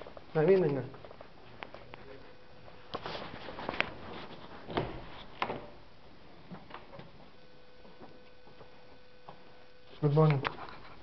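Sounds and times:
rustling handling noises: 2.9s - 5.4s.

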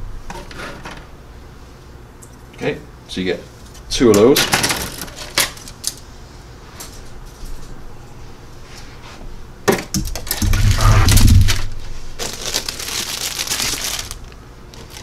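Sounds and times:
dull rumble of handling: 9.3s - 15.0s
plastic crinkling: 10.1s - 15.0s.

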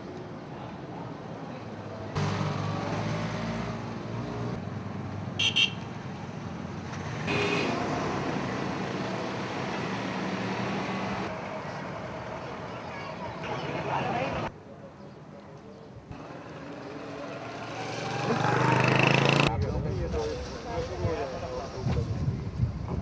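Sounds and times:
car horn beeps: 5.4s - 5.9s, 7.3s - 7.8s.

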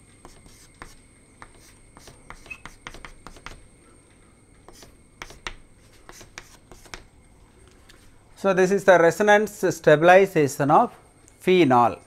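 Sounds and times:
chalk scratching on blackboard: 0.2s - 3.6s, 4.7s - 7.1s.

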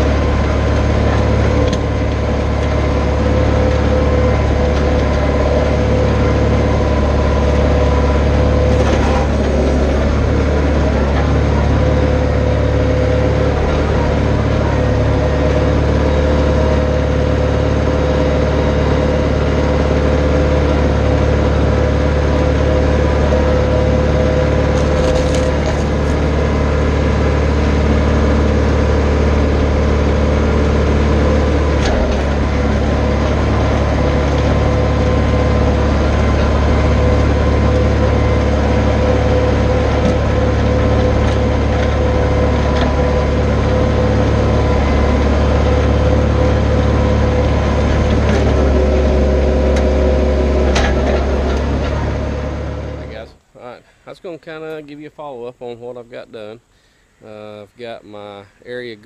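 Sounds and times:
tractor diesel engine running: 0.0s - 59.0s
box blade dragging across dirt: 24.7s - 26.3s.

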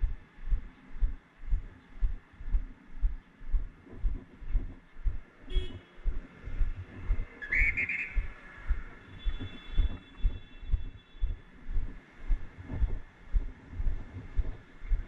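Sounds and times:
whistle blowing: 7.4s - 8.2s.

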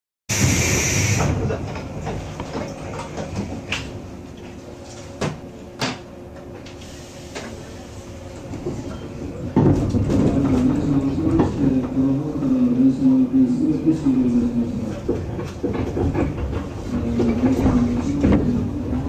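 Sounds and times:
loud hiss: 0.3s - 1.4s
low steady train rumble: 0.3s - 19.0s.

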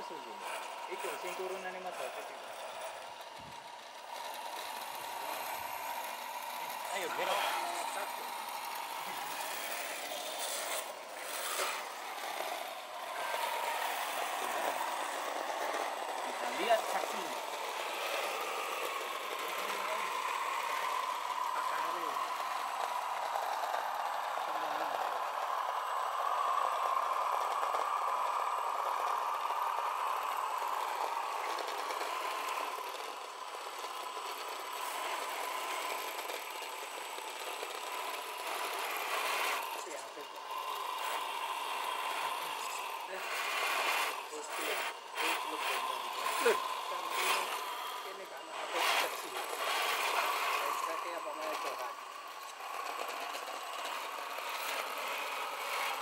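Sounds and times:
rc car electric motor whine: 0.0s - 56.0s.

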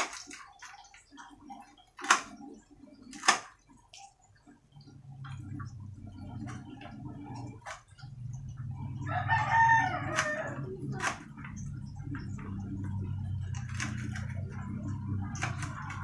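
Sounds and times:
steady low hum: 4.3s - 16.0s
rooster crowing: 9.0s - 10.8s.

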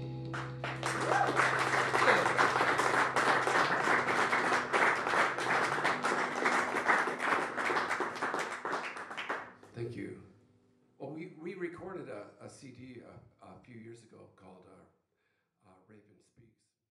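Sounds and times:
acoustic guitar chord ringing: 0.0s - 1.0s, 1.6s - 7.6s
audience applauding: 0.3s - 9.5s.

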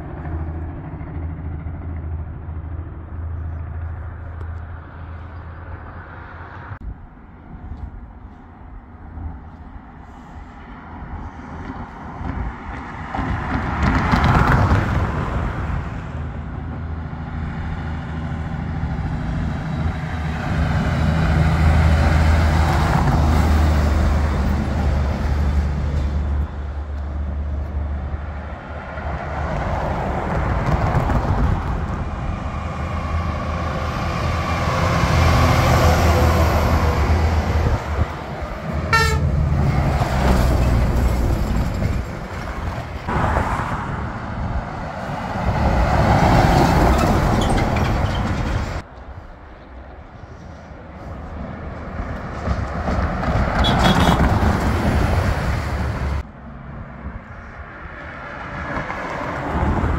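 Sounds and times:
cars passing: 0.0s - 59.9s
trucks engine braking: 13.2s - 56.2s.

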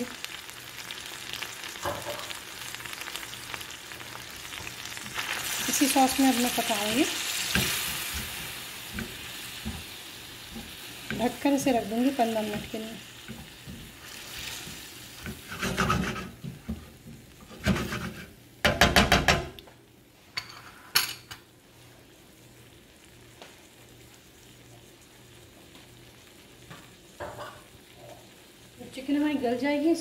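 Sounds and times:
sauce simmering hiss: 0.0s - 18.5s, 21.6s - 30.0s
spatula scraping frying pan: 4.6s - 18.4s.

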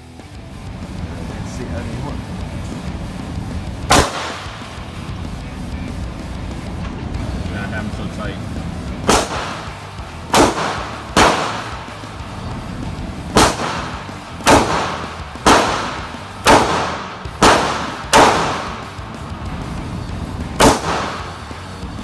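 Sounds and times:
pistol shots ringing indoors: 3.9s - 4.7s, 9.1s - 11.9s, 13.3s - 19.0s, 20.6s - 21.4s.

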